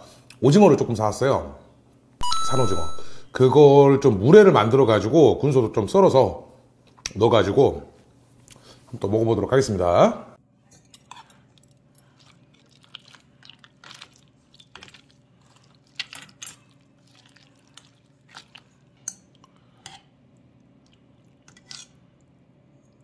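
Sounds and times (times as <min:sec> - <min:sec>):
soft wet stirring: 0:10.5 - 0:23.0.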